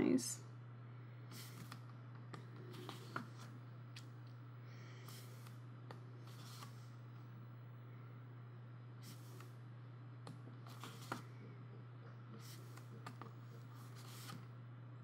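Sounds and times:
steady low hum: 0.0s - 15.0s
pages being turned: 2.7s - 4.1s, 6.2s - 6.9s, 10.6s - 11.3s, 12.4s - 14.5s.

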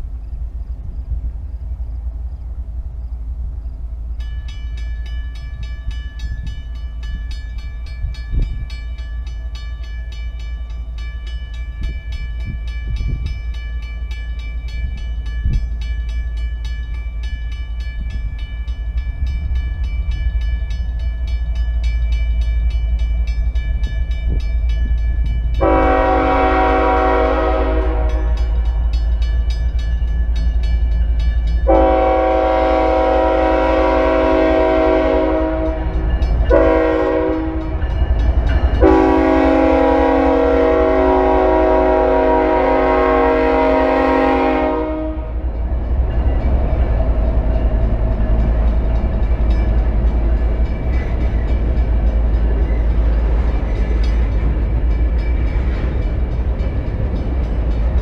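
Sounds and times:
locomotive low rumble: 0.0s - 58.0s
ringing crossing bell: 4.2s - 33.0s, 35.4s - 39.4s, 45.4s - 58.0s
locomotive air horn: 25.6s - 28.5s, 31.7s - 35.9s, 36.5s - 37.8s, 38.8s - 45.4s.

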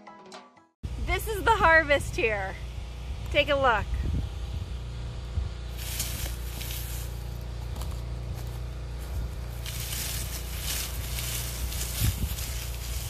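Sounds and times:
steady low rumble: 0.9s - 13.0s
onion skins and mulch rustling: 5.7s - 13.0s.

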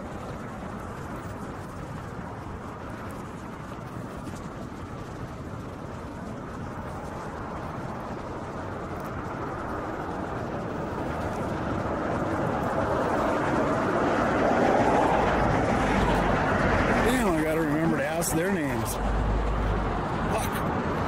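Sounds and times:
road traffic noise: 0.0s - 21.0s
vehicle approaching: 5.6s - 21.0s.

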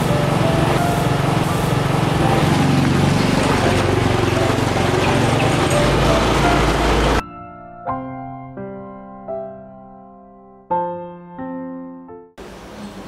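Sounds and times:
motor scooter engine humming: 0.0s - 7.2s.

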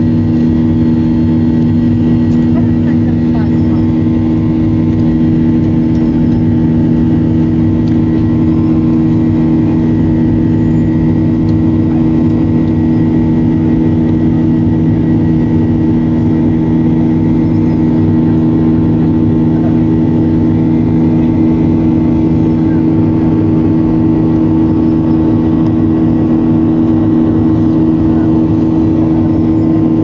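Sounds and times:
jet engine drone in cabin: 0.0s - 30.0s.

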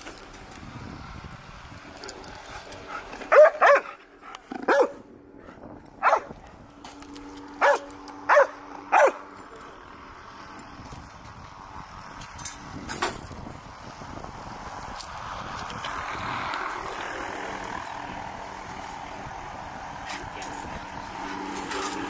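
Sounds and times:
dog barking sharply: 3.3s - 4.0s, 4.7s - 5.0s, 7.6s - 9.2s.

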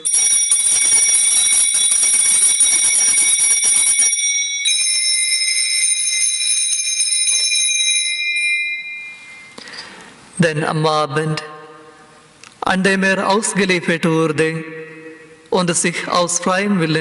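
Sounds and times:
small high-pitched bells ringing: 0.0s - 9.9s.

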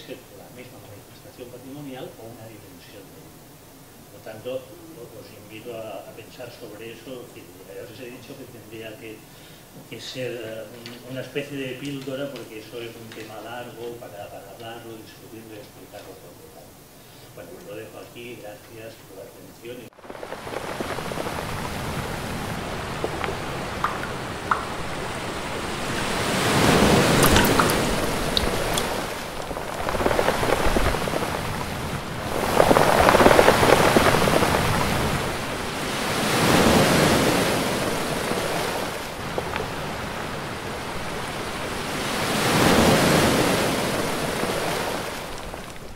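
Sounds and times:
sea waves surging: 19.9s - 45.9s.

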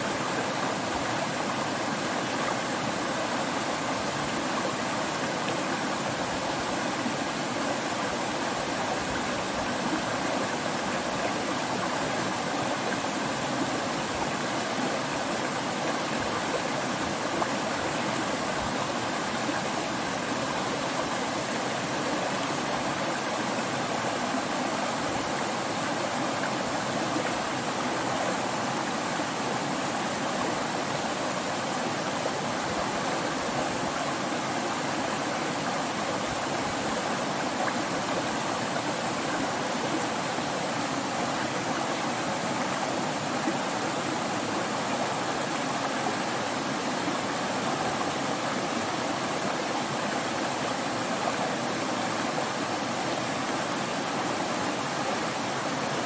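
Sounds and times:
stream rushing over rocks: 0.0s - 56.0s.

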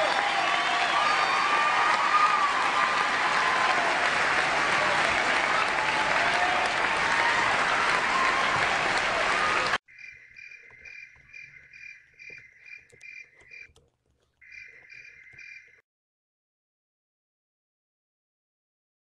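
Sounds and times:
applause: 0.0s - 9.8s
crickets chirping: 9.9s - 13.7s, 14.4s - 15.8s.

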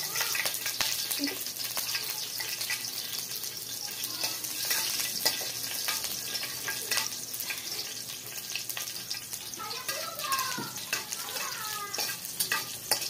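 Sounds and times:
oil sizzling in a frying pan: 0.0s - 13.0s
spatula clicking against pan: 4.2s - 7.6s, 9.8s - 13.0s.

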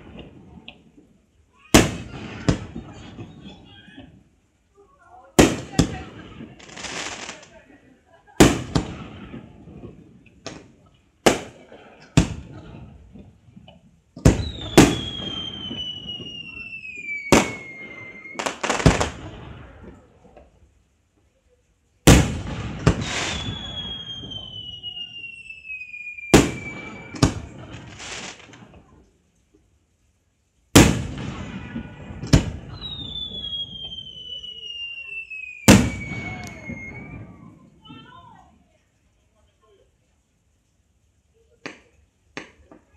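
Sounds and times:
fireworks bangs: 0.0s - 4.4s, 5.1s - 20.6s, 22.0s - 29.1s, 30.7s - 38.6s
descending firework whistle: 14.3s - 20.0s, 22.1s - 28.4s, 30.8s - 37.9s.

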